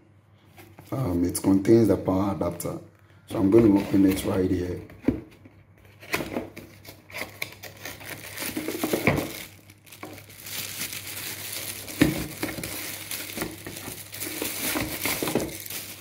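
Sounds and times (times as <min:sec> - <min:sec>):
cardboard packaging rustling: 0:03.4 - 0:04.8, 0:05.8 - 0:16.0
plastic bag crinkling: 0:07.2 - 0:16.0.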